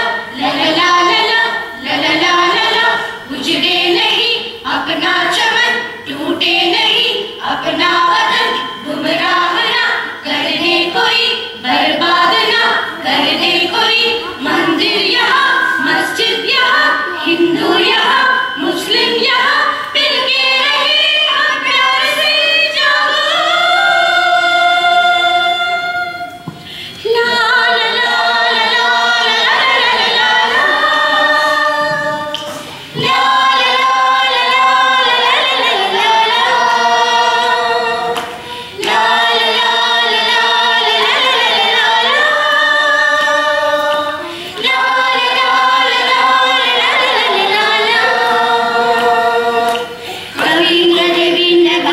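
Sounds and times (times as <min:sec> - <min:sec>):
children and adults singing: 0:00.0 - 0:51.9.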